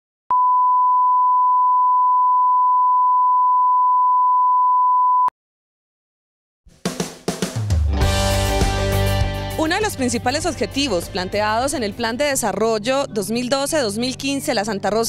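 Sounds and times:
steady test tone beep: 0:00.3 - 0:05.3.

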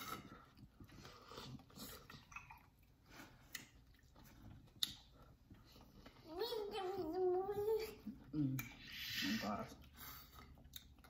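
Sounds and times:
chewing corn on the cob: 0:00.0 - 0:06.2, 0:09.7 - 0:11.0.

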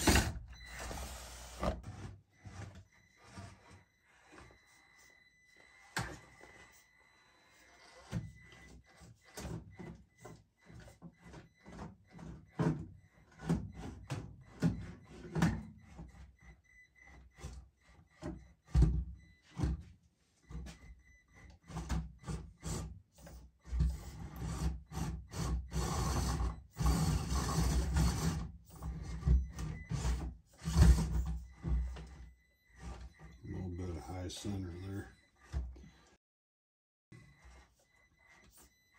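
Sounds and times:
toy car knocking and scraping: 0:00.0 - 0:05.1, 0:21.5 - 0:33.4.

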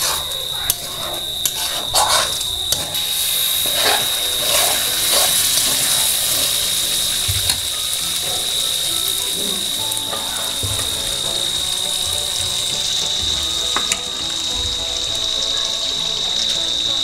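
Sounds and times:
spoon scraping in pan: 0:00.0 - 0:11.6
liquid sizzling in hot pan: 0:00.0 - 0:17.0.

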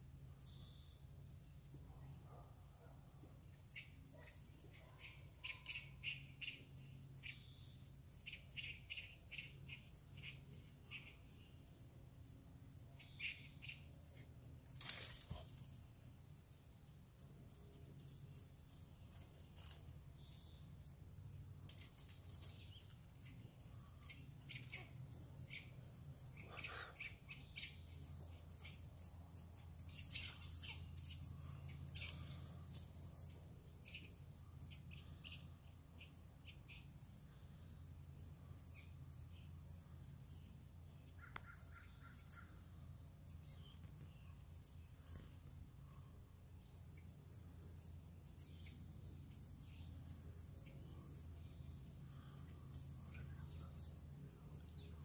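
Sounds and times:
faint low hum: 0:00.0 - 0:55.0
squirrels chirping and clicking: 0:00.1 - 0:15.7, 0:16.3 - 0:55.0
squirrel chattering: 0:23.2 - 0:27.9.

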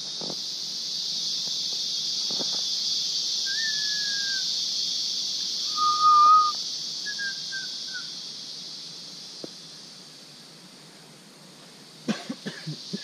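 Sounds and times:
chorus of forest insects: 0:00.0 - 0:13.0
whistled notes: 0:03.5 - 0:04.4, 0:05.7 - 0:08.0.

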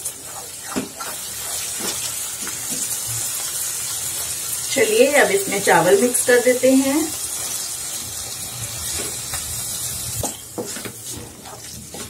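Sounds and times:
wooden spatula stirring: 0:00.0 - 0:04.4, 0:10.6 - 0:12.0
food sizzling in a pan: 0:00.0 - 0:12.0.

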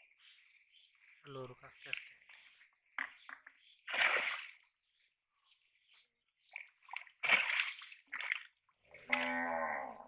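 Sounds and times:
shallow water splashes: 0:03.8 - 0:04.6, 0:06.4 - 0:09.3.

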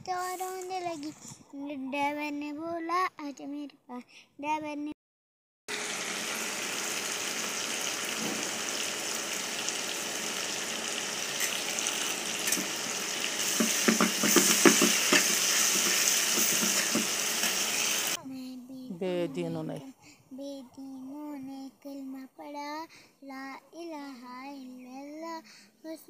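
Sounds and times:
noodles sizzling in a pan: 0:05.7 - 0:18.2
utensil knocking against pan: 0:13.4 - 0:17.6.

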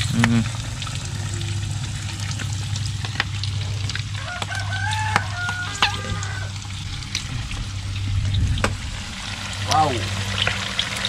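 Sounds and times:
food frying in hot oil: 0:00.0 - 0:11.0
low steady hum: 0:00.0 - 0:11.0
rooster crowing: 0:04.1 - 0:06.7.

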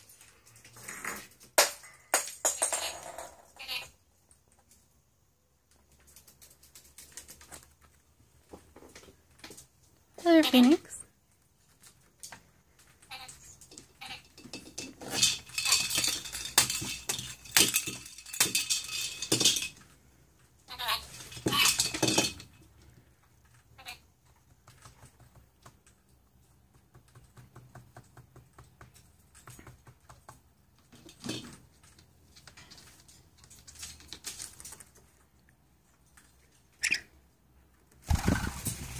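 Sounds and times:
plastic ball toy rattling: 0:13.1 - 0:20.0, 0:20.7 - 0:22.6.

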